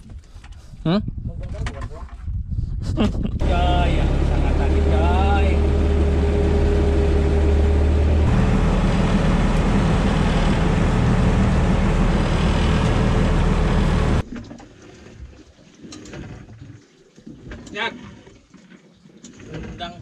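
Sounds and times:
boat engine running: 3.4s - 14.2s.

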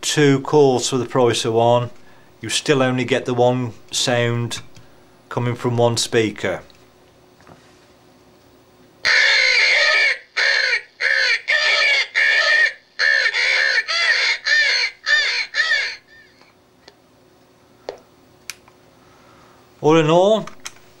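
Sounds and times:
recorded crow caws from speaker: 9.0s - 16.5s.

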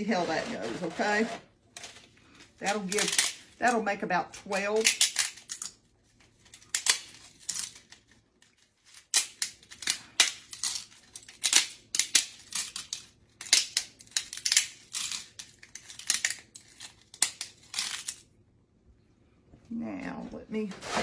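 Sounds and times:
dry noodles snapping: 6.5s - 18.3s.

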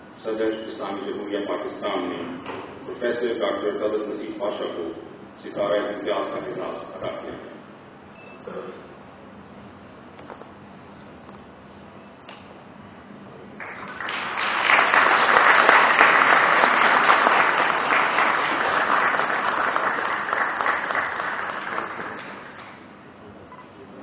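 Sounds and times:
audience applauding: 13.6s - 22.8s.

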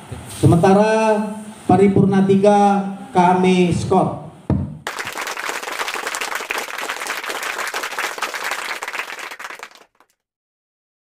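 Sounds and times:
crowd applauding: 4.8s - 10.2s.

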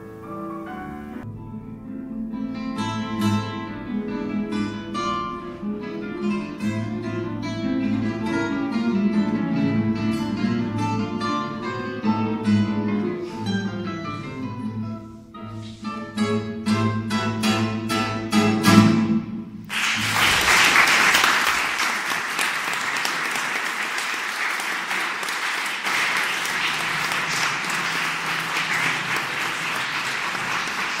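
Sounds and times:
nylon-string guitars playing: 0.0s - 19.7s
audience applauding: 19.7s - 31.0s.

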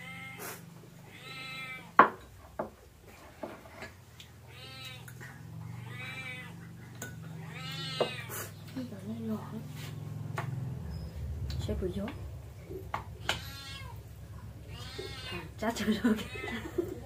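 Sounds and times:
cat meowing: 0.0s - 2.0s, 4.4s - 5.1s, 5.8s - 6.6s, 7.4s - 8.3s, 13.2s - 14.0s, 14.6s - 15.6s.

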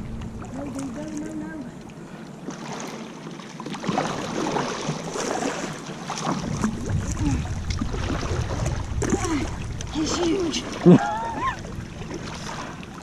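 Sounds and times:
water splashing against kayak hull: 0.0s - 13.0s
wind rumble on microphone: 6.2s - 13.0s.

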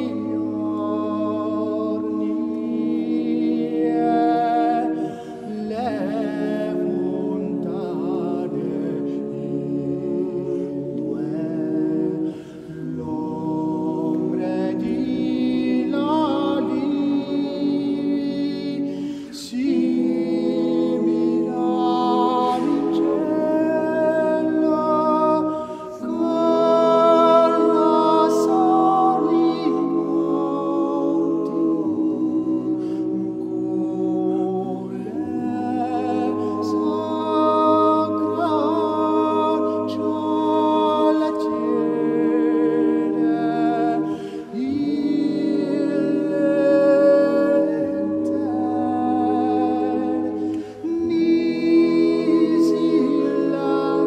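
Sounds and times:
unaccompanied choral singing: 0.0s - 54.0s.

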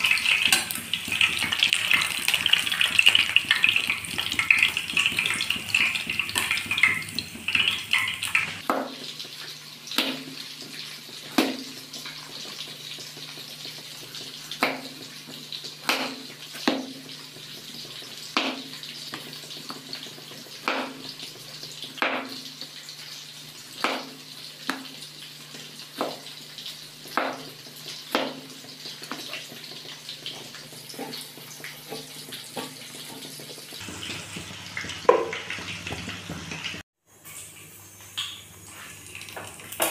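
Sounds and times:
fish sizzling in oil: 0.0s - 39.9s
knife chopping on cutting board: 14.6s - 15.0s, 15.8s - 17.0s, 20.6s - 21.0s, 23.8s - 24.9s, 28.1s - 28.4s.

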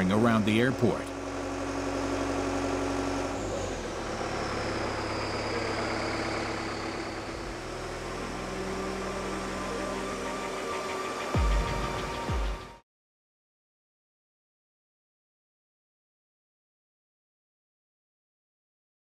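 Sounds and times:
aircraft tractor engine running: 0.0s - 12.8s.

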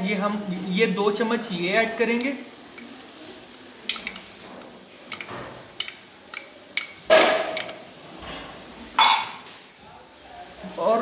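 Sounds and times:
spoon clattering: 2.1s - 3.0s, 3.8s - 4.4s, 5.1s - 7.9s, 9.0s - 9.5s
metal spoon tapping glass bowl: 9.0s - 9.4s.

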